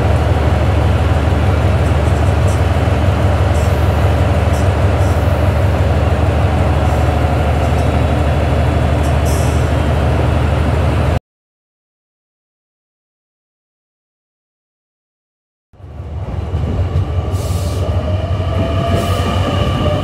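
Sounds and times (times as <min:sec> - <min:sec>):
train machinery humming: 0:00.0 - 0:11.2, 0:15.8 - 0:20.0.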